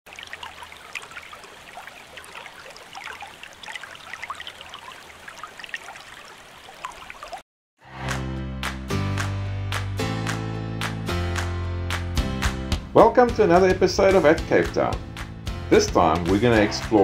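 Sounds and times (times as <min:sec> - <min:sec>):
stream water babbling: 0:00.1 - 0:07.4.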